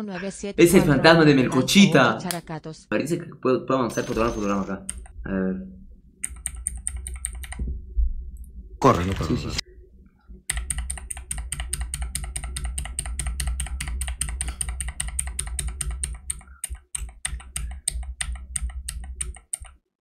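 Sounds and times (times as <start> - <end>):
low hum: 0.0 - 16.6
rapid sharp clicks: 3.9 - 5.2, 6.2 - 7.7, 10.4 - 19.8.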